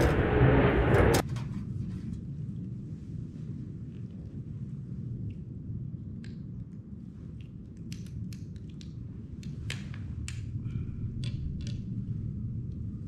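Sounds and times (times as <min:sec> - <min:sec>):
low rumble: 0:00.0 - 0:06.0.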